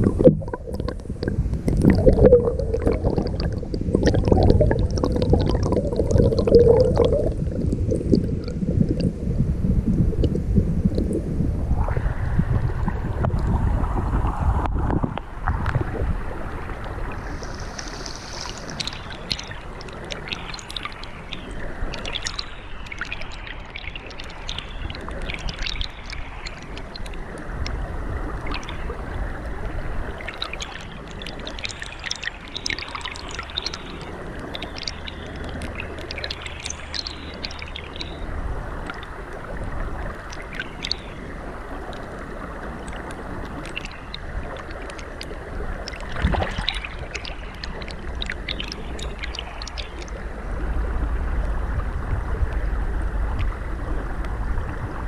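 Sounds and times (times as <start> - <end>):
crackles and ticks underwater: 0.0 - 55.0
muffled stream water rushing: 0.0 - 55.0.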